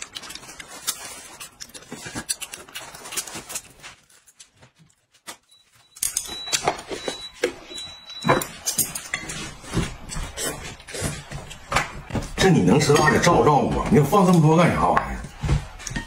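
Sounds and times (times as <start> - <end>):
noodles slurped and chewed: 0.0 - 3.8.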